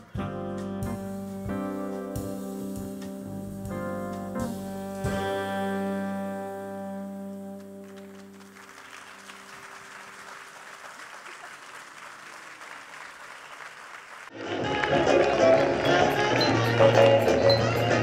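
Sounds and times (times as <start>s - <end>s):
audience applauding: 7.2s - 18.0s
loud music: 14.4s - 18.0s.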